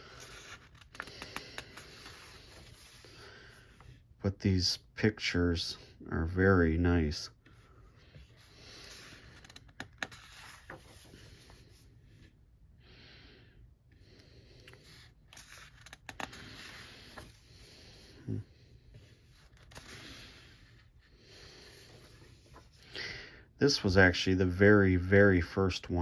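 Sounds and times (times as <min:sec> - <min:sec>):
paper pages rustling: 0:00.0 - 0:04.0, 0:08.2 - 0:11.8, 0:14.7 - 0:17.5, 0:18.9 - 0:21.0, 0:21.7 - 0:22.8.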